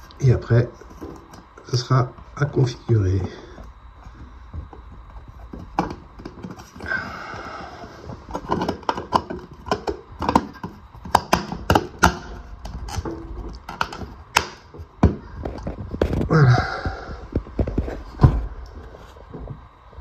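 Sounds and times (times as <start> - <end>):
rustling and scraping: 0.0 - 11.2, 12.2 - 20.0.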